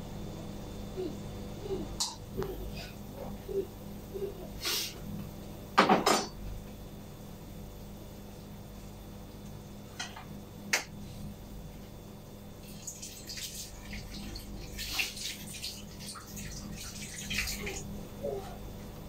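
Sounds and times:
tap water running and splashing: 0:12.6 - 0:18.0.

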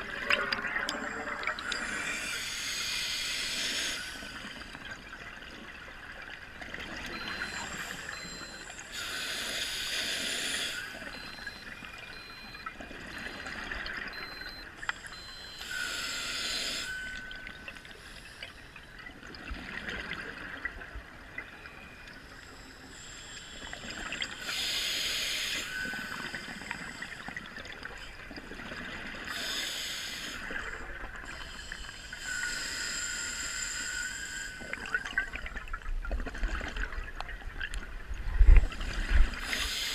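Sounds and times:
regulator hiss on inhale: 0:01.7 - 0:04.6, 0:08.9 - 0:11.0, 0:15.6 - 0:18.6, 0:22.6 - 0:27.4, 0:29.3 - 0:30.6, 0:31.3 - 0:34.8, 0:39.4 - 0:39.9.

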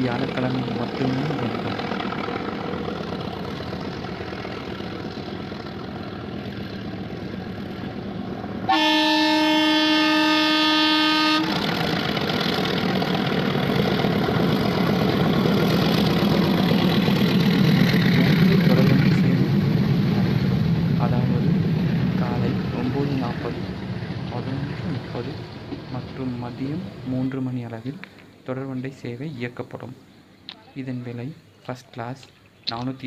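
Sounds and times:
train running rumble: 0:00.0 - 0:30.0
train horn blast: 0:08.7 - 0:11.7.

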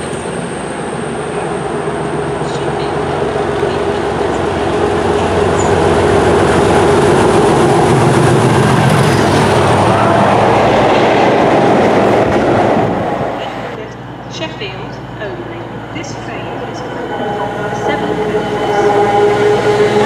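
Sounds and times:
diesel locomotive engine: 0:00.0 - 0:20.0
train wheels clattering on rails: 0:03.6 - 0:09.9.

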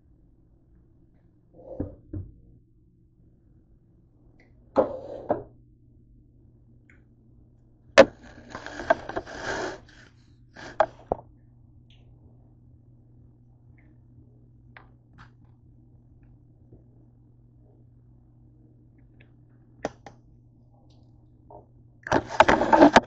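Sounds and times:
faint steady hum: 0:00.0 - 0:23.0
rustling and scraping: 0:08.0 - 0:11.2, 0:22.1 - 0:23.0.

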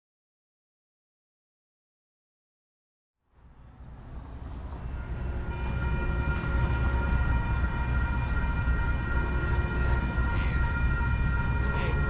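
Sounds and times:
train rumble: 0:03.3 - 0:12.0
locomotive air horn blast: 0:05.0 - 0:12.0.

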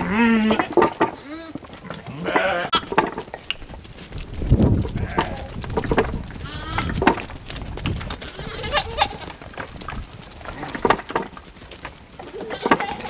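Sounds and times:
sheep bleating: 0:00.0 - 0:02.9, 0:04.9 - 0:05.6, 0:06.4 - 0:07.0, 0:08.2 - 0:09.4, 0:12.2 - 0:13.0.

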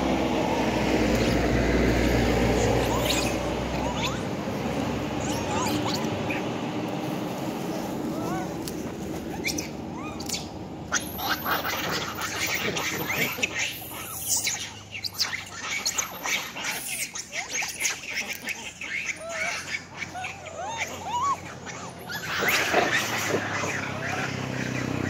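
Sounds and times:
monkeys squealing and squawking: 0:00.0 - 0:06.6, 0:07.7 - 0:25.0.

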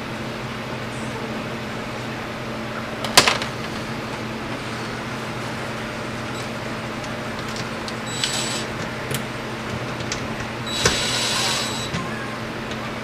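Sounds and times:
steady low hum: 0:00.0 - 0:13.0
cordless drill whirr: 0:08.1 - 0:08.8, 0:10.7 - 0:12.0.

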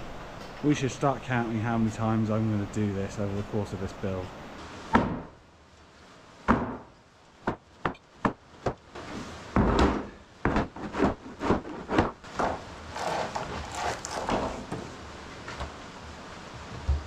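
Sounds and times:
hammer knocking on wooden boards: 0:06.5 - 0:08.8.

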